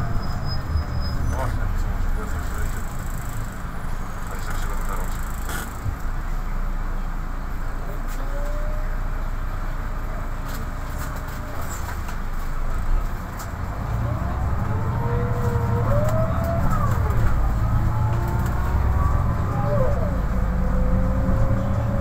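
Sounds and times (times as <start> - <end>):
bus engine rumble: 0.0 - 22.0
drivetrain whine: 11.0 - 22.0.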